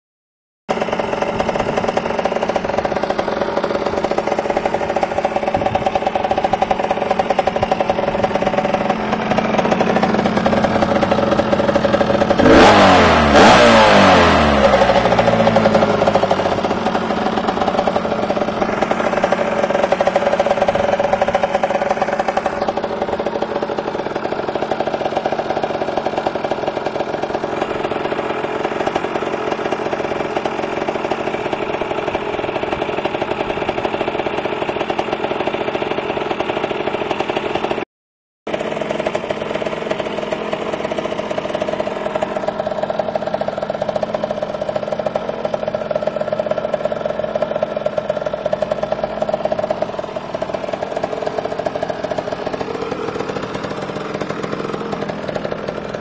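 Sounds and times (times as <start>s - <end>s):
motorcycle engine idling: 0.7s - 37.8s, 38.5s - 56.0s
motorcycle engine revving: 0.7s - 37.8s, 38.5s - 56.0s.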